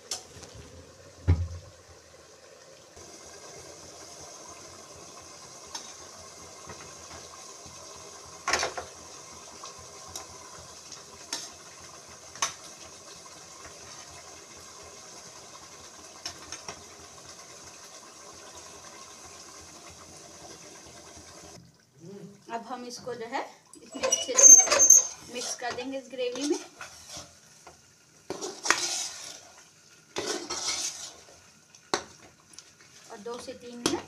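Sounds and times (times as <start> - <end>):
gravy simmering and bubbling: 0.0 - 34.0.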